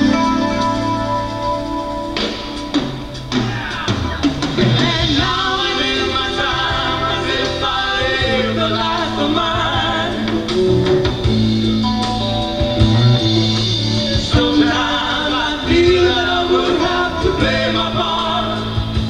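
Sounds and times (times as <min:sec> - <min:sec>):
live rock band playing: 0:00.0 - 0:19.0
lead singer: 0:02.7 - 0:19.0
backing singers: 0:03.2 - 0:11.6, 0:12.8 - 0:19.0.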